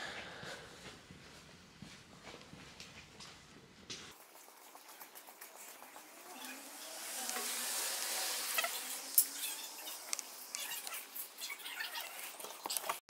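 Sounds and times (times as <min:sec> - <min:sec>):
leaves rustling: 0:04.2 - 0:12.7
hiss: 0:06.1 - 0:11.4.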